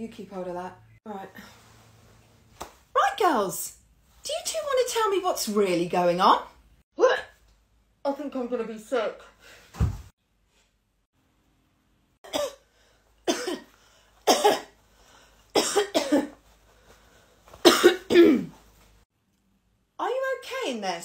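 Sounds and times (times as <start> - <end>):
low thump: 9.7 - 10.1.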